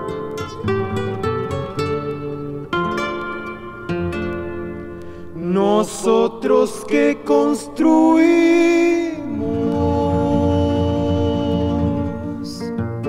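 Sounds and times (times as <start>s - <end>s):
plucked guitar and strings: 0.0s - 6.3s, 8.8s - 13.0s
person singing with vibrato: 5.3s - 12.8s.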